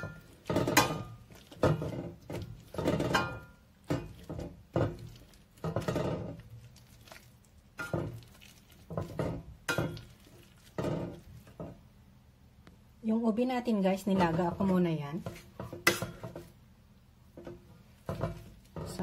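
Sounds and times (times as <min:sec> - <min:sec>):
metal masher scraping pan: 0:00.0 - 0:06.6.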